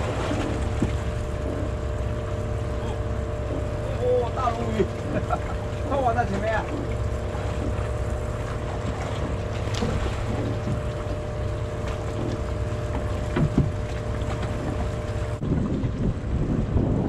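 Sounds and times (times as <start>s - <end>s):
boat engine idling: 0.0s - 17.0s
wind on microphone: 13.2s - 17.0s.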